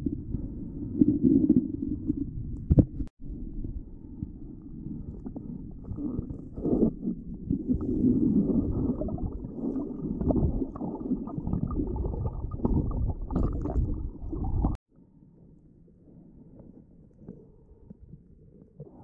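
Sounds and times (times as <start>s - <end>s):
underwater knocks and bubbling: 4.2s - 14.8s
underwater water churning: 4.8s - 14.8s.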